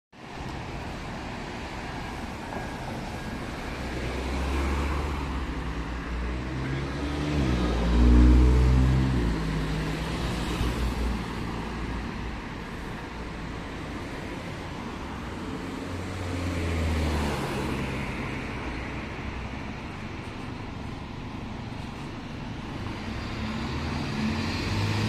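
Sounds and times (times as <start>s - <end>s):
road traffic passing: 0.2s - 25.0s
car passing by: 2.4s - 12.8s, 15.2s - 19.2s, 22.8s - 25.0s.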